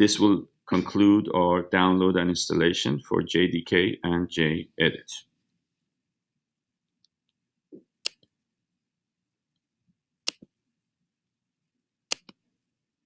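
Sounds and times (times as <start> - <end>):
computer mouse clicks: 8.0 - 8.3, 10.2 - 10.5, 12.1 - 12.4.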